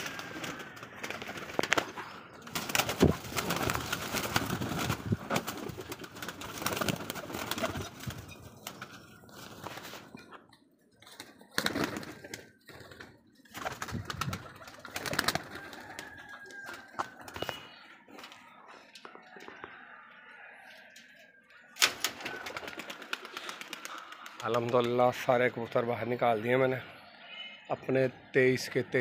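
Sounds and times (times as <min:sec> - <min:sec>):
pigeons cooing: 0:22.0 - 0:24.5.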